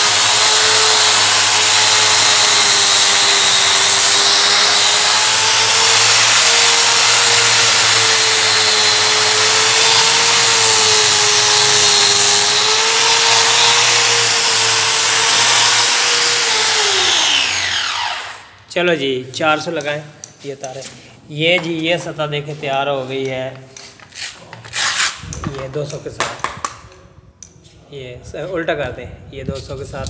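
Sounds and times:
angle grinder polishing stone: 0:00.0 - 0:18.4
grinder motor spinning down: 0:00.0 - 0:18.5.

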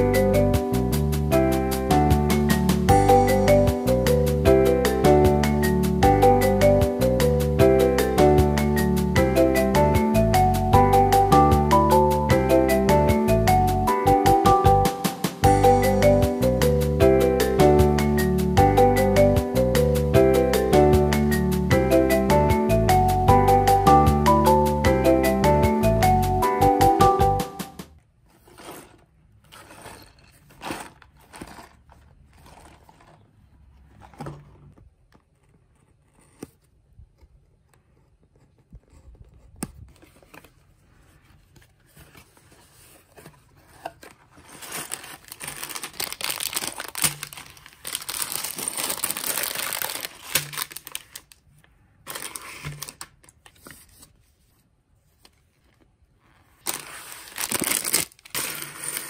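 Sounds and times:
plastic bags crinkling and tearing: 0:43.6 - 0:51.5, 0:52.1 - 0:53.6, 0:56.5 - 0:59.0.

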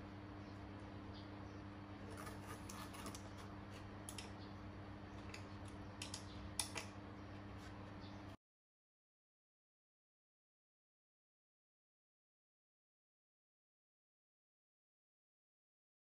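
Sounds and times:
steady low hum: 0:00.0 - 0:08.4.

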